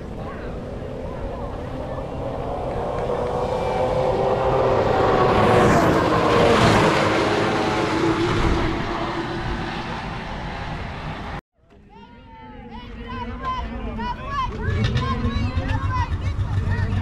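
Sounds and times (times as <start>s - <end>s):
snowmobile engine passing at speed: 0.0s - 11.4s.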